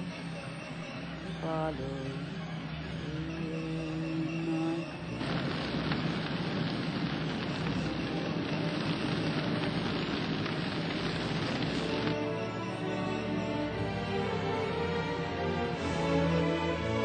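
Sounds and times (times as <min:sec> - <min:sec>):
dense rushing hiss: 0:05.1 - 0:14.5.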